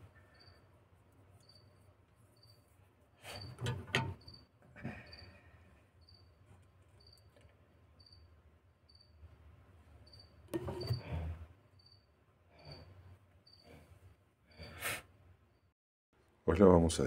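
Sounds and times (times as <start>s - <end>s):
cricket chirping: 0.0s - 0.7s, 1.4s - 2.7s, 3.3s - 6.4s, 7.0s - 14.8s, 15.5s - 15.7s.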